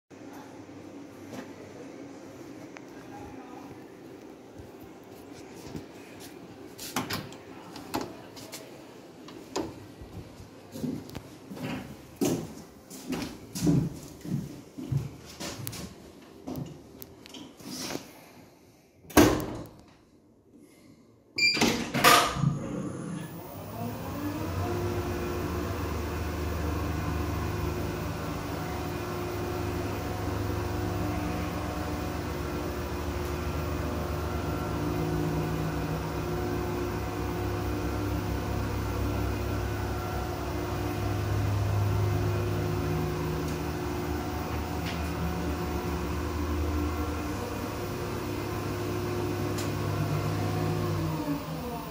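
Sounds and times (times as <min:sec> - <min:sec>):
platform lift drive humming: 0:22.6 - 0:51.9.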